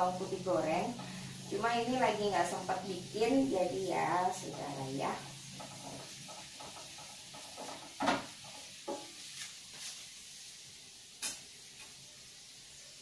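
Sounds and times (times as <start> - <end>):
shallots sizzling in oil: 0.0 - 13.0
metal spatula scraping a wok: 4.4 - 10.4.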